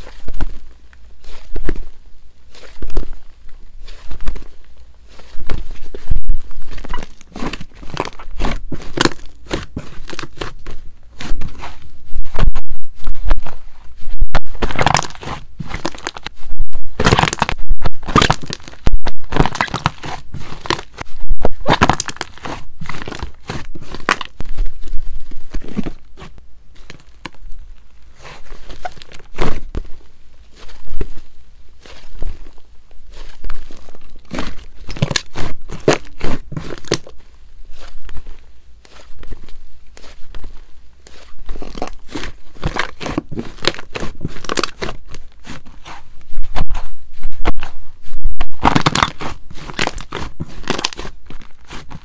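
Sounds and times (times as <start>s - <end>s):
slime crackling and snapping: 14.4s - 24.4s, 33.1s - 37.9s, 41.1s - 45.6s, 48.5s - 52.0s.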